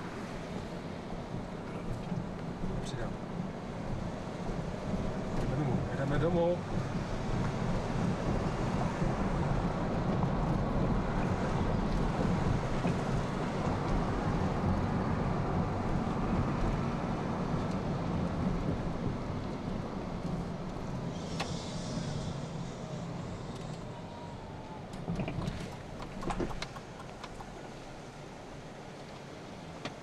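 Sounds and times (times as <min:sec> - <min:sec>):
car engine and tyre rumble: 0:00.0 - 0:30.0.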